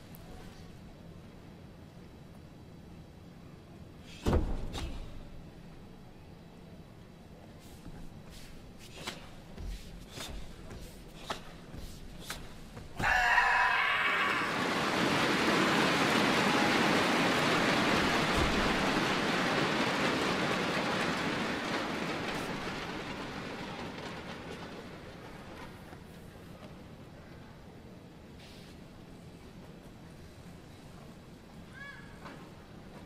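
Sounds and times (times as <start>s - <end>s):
martial arts uniform snaps: 11.2s - 11.6s
person shouting: 13.0s - 14.6s
crowd applauding: 13.0s - 25.5s.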